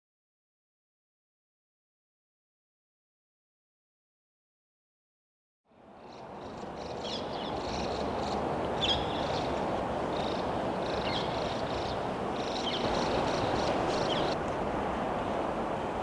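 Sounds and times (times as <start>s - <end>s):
low outdoor rush: 5.7s - 16.0s
high bird chirps: 10.2s - 14.4s.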